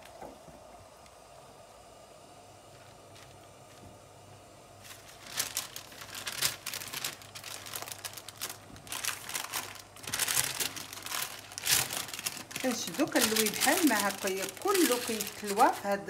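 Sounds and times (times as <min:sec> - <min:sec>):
parchment paper crinkling: 0:04.8 - 0:16.0.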